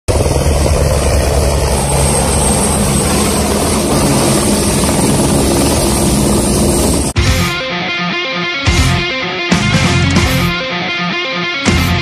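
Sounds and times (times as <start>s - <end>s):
helicopter rotor beat: 0.1s - 7.2s
high engine whine: 0.1s - 7.2s.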